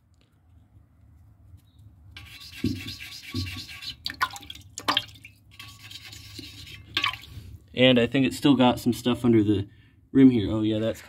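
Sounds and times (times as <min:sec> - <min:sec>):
pumice scrubbing porcelain: 0:02.2 - 0:04.2, 0:05.5 - 0:07.3
water splashing: 0:02.7 - 0:07.4.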